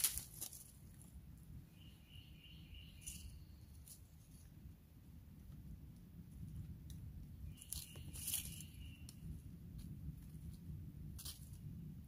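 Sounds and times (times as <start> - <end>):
low background rumble: 0.0 - 12.0.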